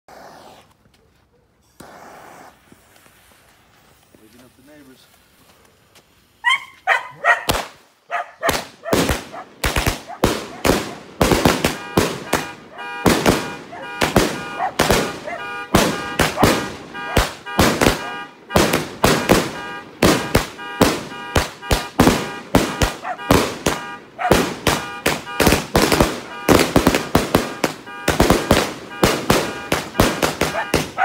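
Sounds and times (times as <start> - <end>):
fireworks bangs: 7.4 - 7.8, 8.4 - 31.0.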